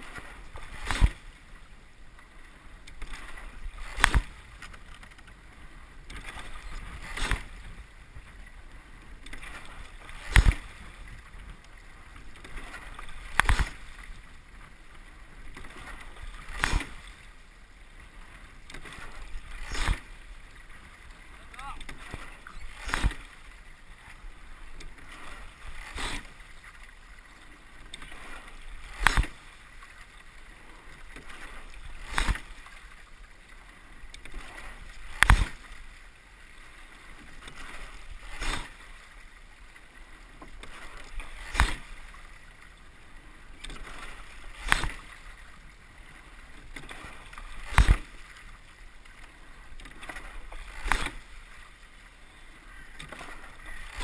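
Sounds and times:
water rushing along hull: 0:00.0 - 0:54.0
oars knocking in oarlocks: 0:02.9 - 0:05.4, 0:09.2 - 0:10.8, 0:12.4 - 0:13.8, 0:28.0 - 0:29.4, 0:34.2 - 0:35.6, 0:40.4 - 0:41.9, 0:43.6 - 0:45.1, 0:46.7 - 0:48.2, 0:49.8 - 0:51.2.

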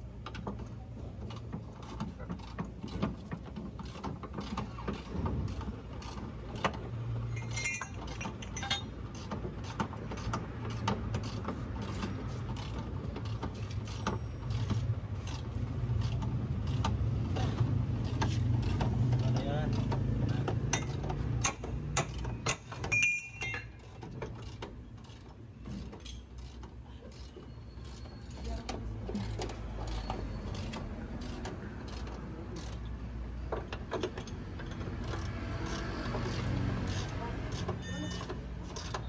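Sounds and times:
ratchet wrench clicking: 0:34.0 - 0:39.0.

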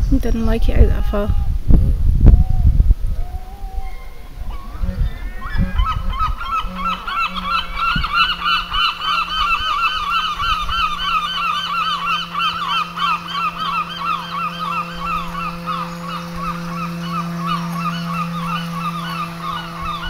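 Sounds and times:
steady low hum: 0:00.0 - 0:20.0
geese honking: 0:03.5 - 0:20.0.

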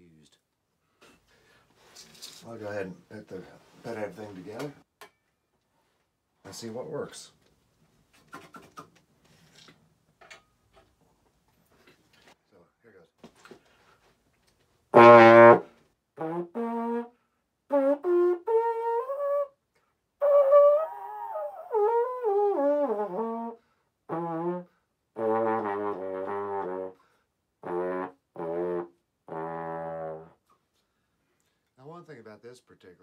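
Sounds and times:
valve trombone playing: 0:14.9 - 0:19.5, 0:20.2 - 0:27.0, 0:27.6 - 0:30.4.

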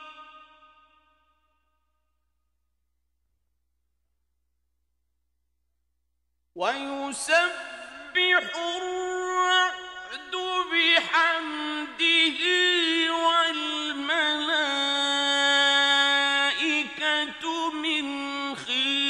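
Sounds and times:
man reciting melodically: 0:00.0 - 0:00.9, 0:06.6 - 0:19.0.

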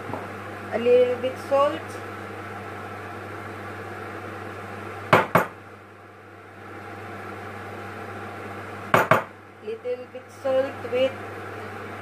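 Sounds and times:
knocks against frying pan: 0:05.1 - 0:05.6, 0:08.9 - 0:09.3.

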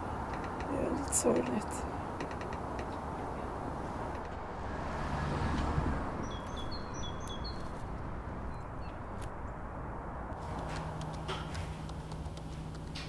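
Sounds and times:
low outdoor background noise: 0:00.0 - 0:13.0
small bird chirping: 0:06.2 - 0:09.6.

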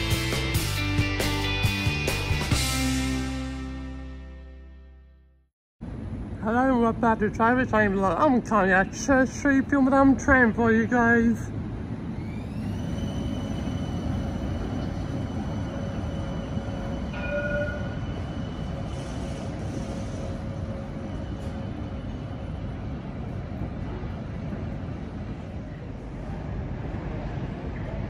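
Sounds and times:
tram electric drive whine: 0:05.8 - 0:28.0.

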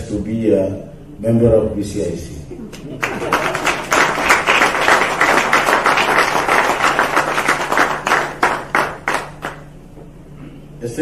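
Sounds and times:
audience applauding: 0:02.8 - 0:09.6.

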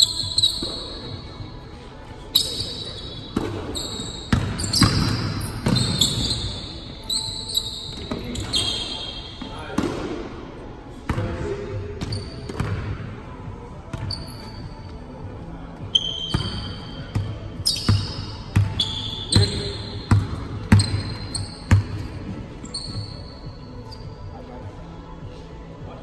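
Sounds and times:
sneakers squeaking on floor: 0:00.0 - 0:09.6, 0:12.0 - 0:12.9, 0:13.8 - 0:24.4.

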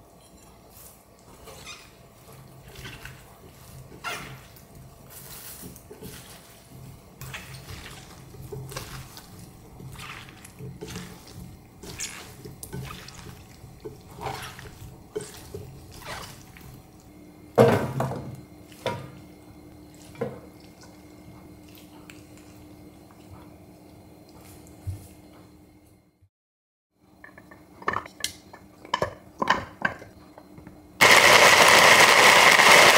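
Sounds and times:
wet squelching of kimchi squeezed: 0:07.3 - 0:17.0.

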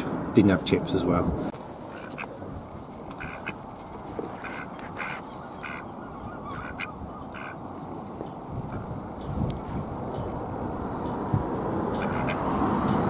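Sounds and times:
ducks quacking: 0:01.9 - 0:02.4, 0:03.1 - 0:07.6, 0:11.9 - 0:12.5.

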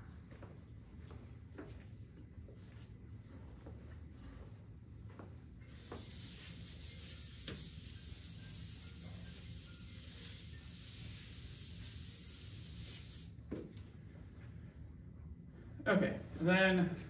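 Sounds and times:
eraser rubbing on chalkboard: 0:05.7 - 0:13.3.

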